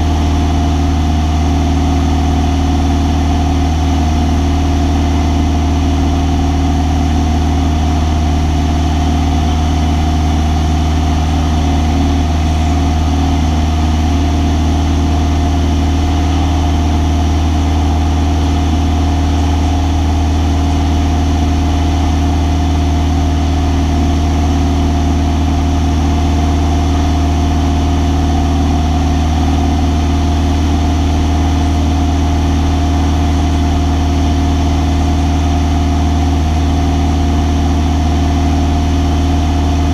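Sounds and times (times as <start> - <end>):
propeller aircraft engine humming: 0.0 - 39.9.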